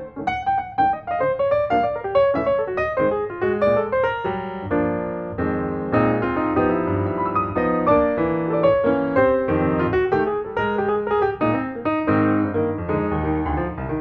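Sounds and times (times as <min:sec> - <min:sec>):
piano music: 0:00.0 - 0:14.0.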